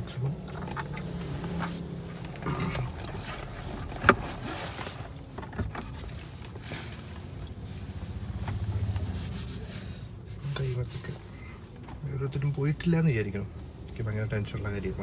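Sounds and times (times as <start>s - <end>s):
tissue rubbing against face: 7.6s - 10.0s.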